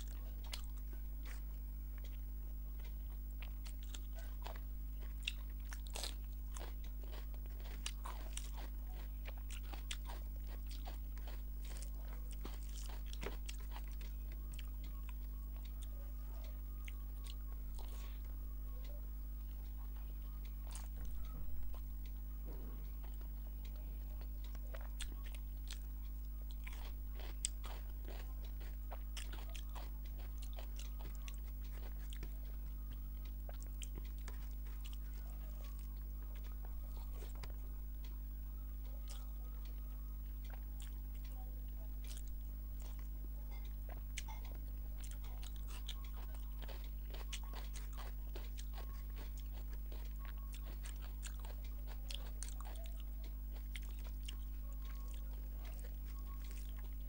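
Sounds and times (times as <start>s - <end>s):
wet chewing smacks: 0.0s - 38.2s, 38.8s - 57.0s
low electrical hum: 0.0s - 57.0s
fingers mixing rice on plate: 22.8s - 57.0s.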